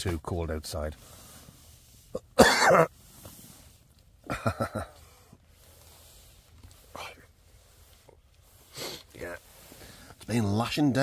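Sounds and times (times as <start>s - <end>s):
man coughing: 2.2s - 2.9s.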